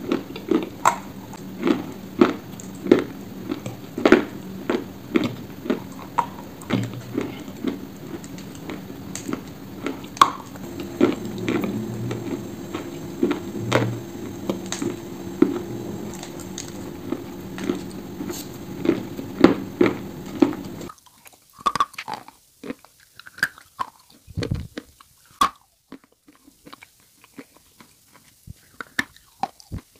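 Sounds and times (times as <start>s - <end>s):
steady low hum: 0.0s - 20.9s
crunchy chewing of clay: 0.0s - 29.9s.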